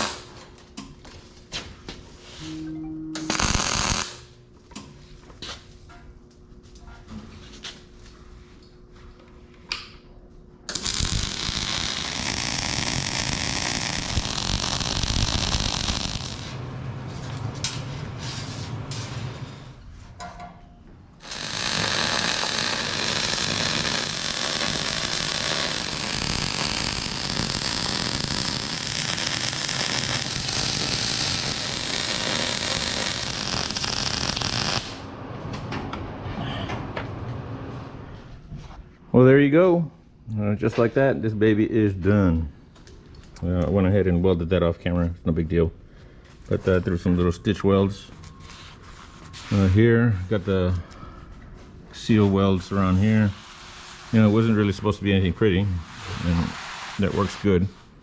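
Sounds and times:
welding arc crackling and buzzing: 0:00.0 - 0:00.4, 0:03.2 - 0:04.4, 0:10.7 - 0:18.1, 0:21.2 - 0:35.1.

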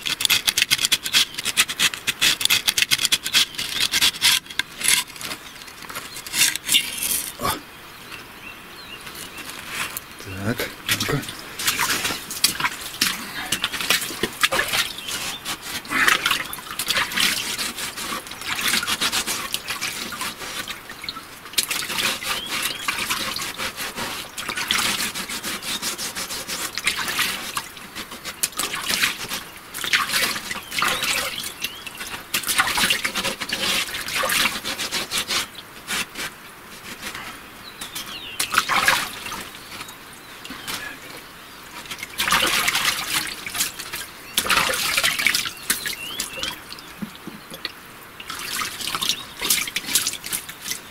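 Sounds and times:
knife clicks and scrapes: 0:00.0 - 0:05.2
muddy water sloshing and splashing: 0:09.1 - 0:50.9.

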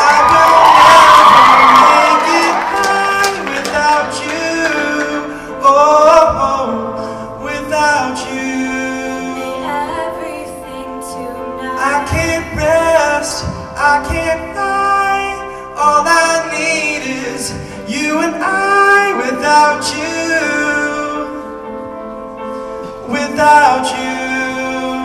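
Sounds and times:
choir singing pop song: 0:00.0 - 0:06.9, 0:07.6 - 0:14.4
live band playing: 0:00.0 - 0:25.0.

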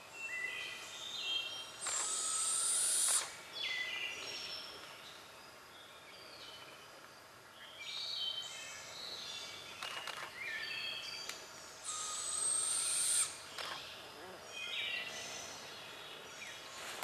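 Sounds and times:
high hissy bird call: 0:01.8 - 0:03.8, 0:11.8 - 0:13.5
birds singing: 0:07.5 - 0:17.0.

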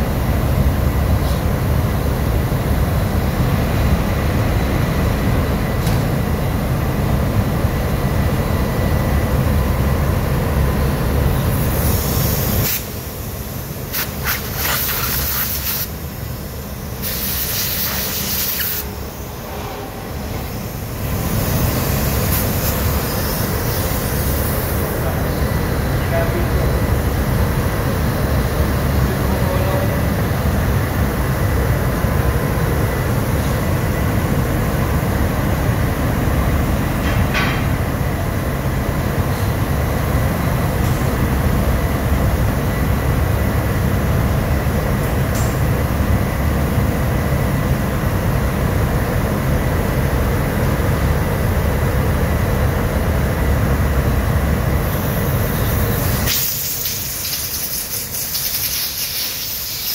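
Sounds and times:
engine room machinery rumble: 0:00.0 - 0:59.9
compressed air blow gun hissing: 0:11.6 - 0:15.9, 0:17.0 - 0:18.9, 0:55.4 - 0:59.9.

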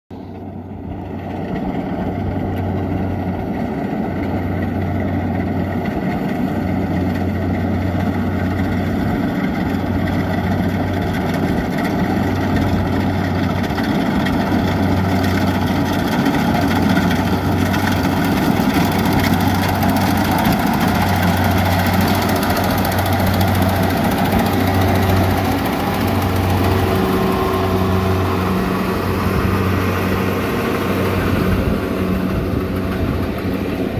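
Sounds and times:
combine harvester engine and machinery: 0:00.1 - 0:33.9
low pulsing hum: 0:20.0 - 0:33.9.

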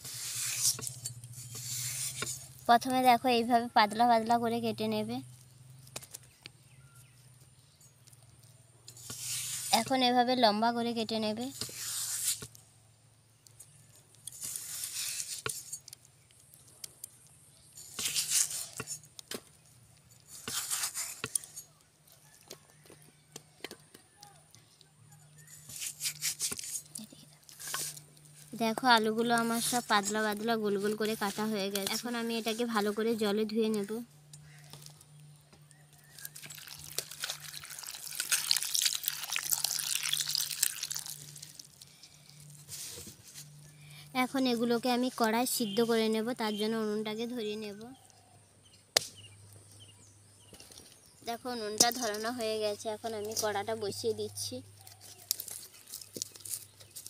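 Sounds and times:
potatoes splashing and clicking: 0:36.0 - 0:42.6
water pouring into bowl: 0:36.4 - 0:41.5.

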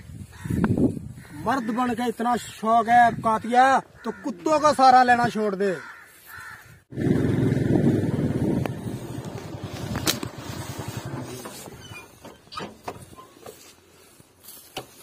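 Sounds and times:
dry grass crackling: 0:05.8 - 0:15.0
motorcycle engine running: 0:06.9 - 0:12.0.

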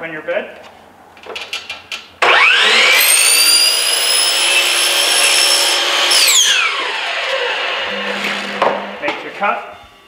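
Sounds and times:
saw motor winding down: 0:02.2 - 0:09.0
miter saw cutting foam: 0:02.2 - 0:09.1.

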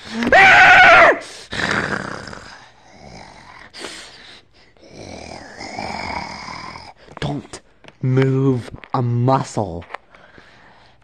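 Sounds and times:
person voicing creature screech: 0:00.1 - 0:01.2.

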